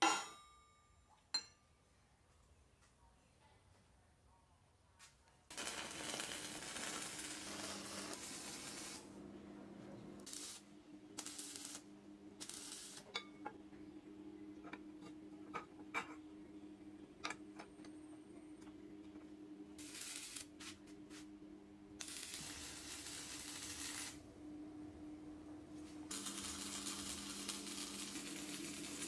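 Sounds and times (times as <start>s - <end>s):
short tack welds: 5.5s - 9.1s, 10.2s - 13.2s, 19.8s - 21.2s, 22.0s - 24.2s, 26.1s - 29.0s
welding arc crackle: 5.5s - 9.2s, 10.2s - 13.1s, 19.8s - 21.3s, 22.0s - 24.2s, 26.1s - 29.0s
steady low hum: 5.5s - 29.0s.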